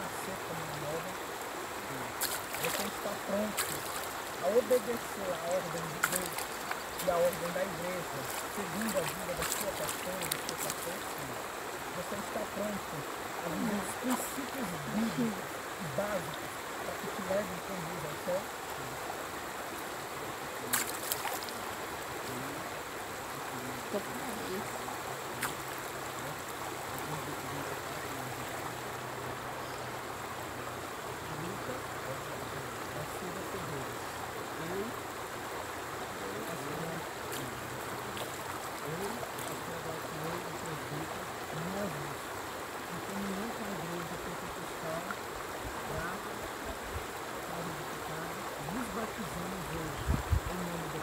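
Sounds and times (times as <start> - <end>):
man talking quietly: 0.0 - 29.8, 30.5 - 35.1, 36.0 - 51.0
flowing river water rushing: 0.0 - 51.0.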